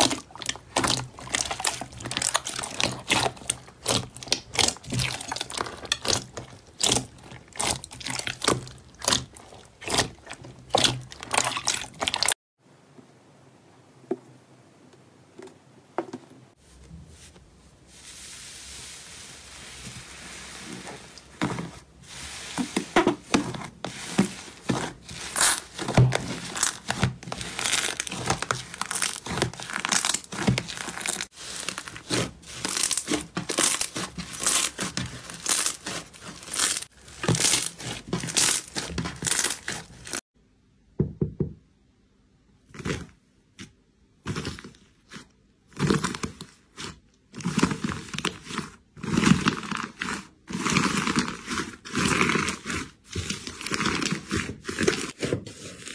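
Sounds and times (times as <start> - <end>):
slime crackling and squelching: 0.0 - 12.4, 17.2 - 40.3, 42.7 - 55.9
soft steady hiss: 12.6 - 23.0.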